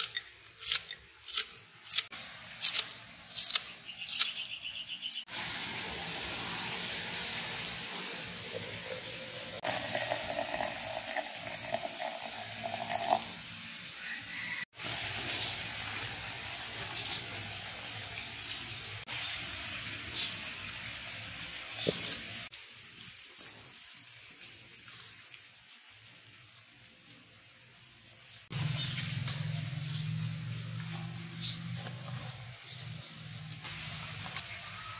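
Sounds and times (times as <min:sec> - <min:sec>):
water pouring into glass jug: 0:08.4 - 0:13.4.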